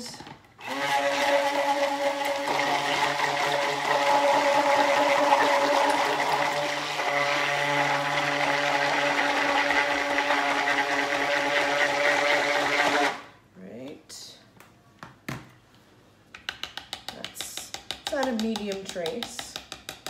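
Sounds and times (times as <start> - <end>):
liquid churning: 0.6 - 13.2
stick blender motor hum: 0.6 - 13.3.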